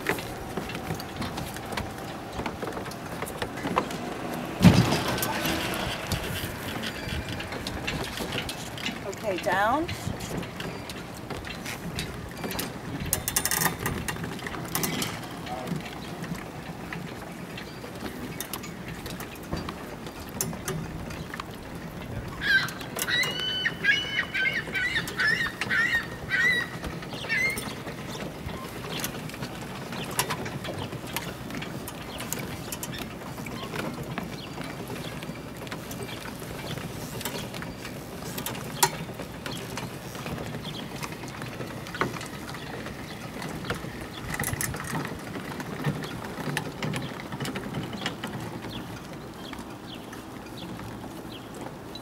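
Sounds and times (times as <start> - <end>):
steady low rumble: 0.0 - 9.4
birds calling: 0.0 - 11.7, 22.3 - 52.0
winch and chain clicks and knocks: 0.0 - 52.0.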